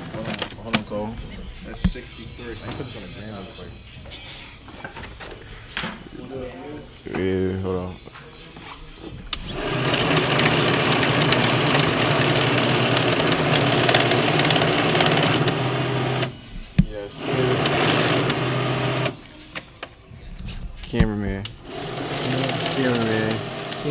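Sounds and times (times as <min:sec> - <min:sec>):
banknote counter riffling bills: 0:09.4 - 0:16.4, 0:17.1 - 0:19.4, 0:21.6 - 0:23.9.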